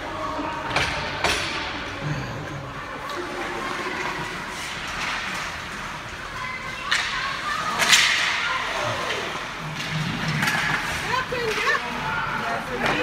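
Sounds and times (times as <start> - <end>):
hockey stick hitting puck: 6.9 - 9.1, 9.8 - 11.6.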